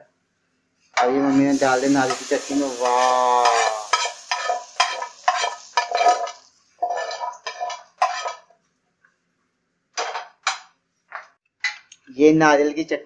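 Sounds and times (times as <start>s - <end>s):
utensils clinking: 1.4s - 8.4s
metal spoon scraping a steel bowl: 2.8s - 8.5s.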